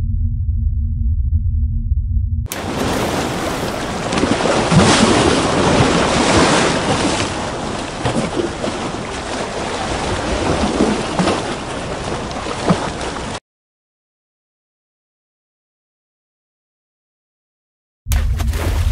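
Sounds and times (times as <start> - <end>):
ocean waves and sloshing water: 2.5 - 13.4, 18.1 - 18.9.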